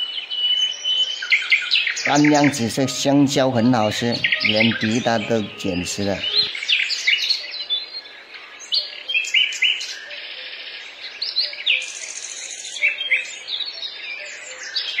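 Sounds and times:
small birds chirping: 0.2 - 10.0
fast bird trill: 2.0 - 6.5.

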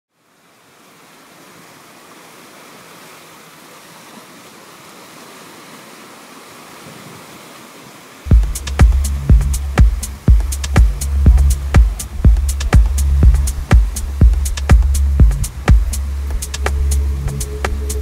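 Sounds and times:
sea surf rushing: 0.6 - 18.0
electronic music with heavy bass: 8.3 - 18.0.

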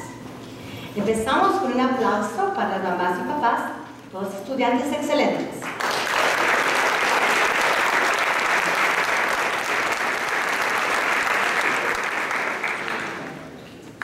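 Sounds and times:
audience applauding: 5.6 - 13.6.

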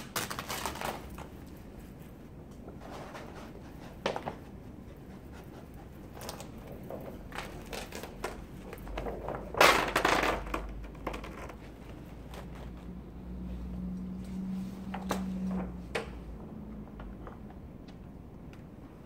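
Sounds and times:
plastic film crinkling: 0.0 - 2.0, 6.2 - 12.9.

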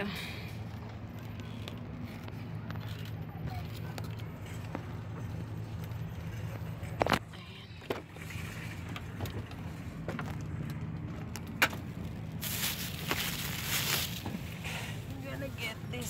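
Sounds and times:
steady low hum: 0.0 - 16.0
rustling: 12.4 - 15.0.

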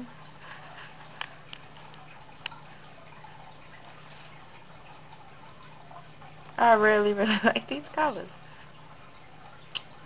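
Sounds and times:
low hum and hiss: 0.0 - 10.0
faint small clicks: 9.7 - 9.9.

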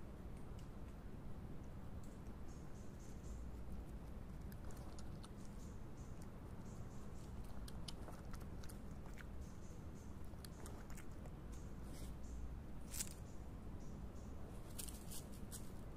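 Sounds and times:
animal chewing and licking food: 3.0 - 12.1.

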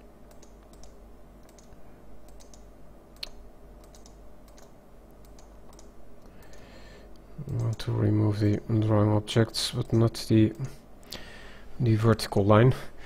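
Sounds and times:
low room hum: 0.0 - 13.0
mouse and keyboard clicks: 0.3 - 6.6.

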